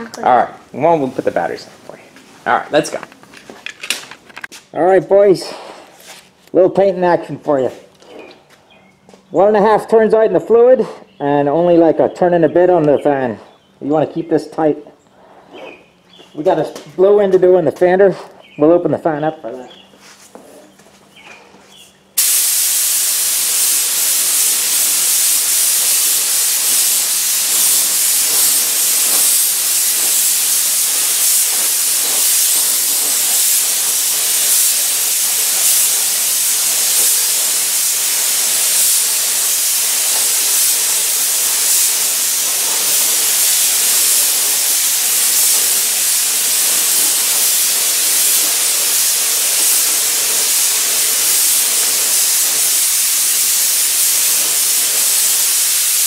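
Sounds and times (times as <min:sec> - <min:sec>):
paint spray gun hissing: 0:22.2 - 0:56.0.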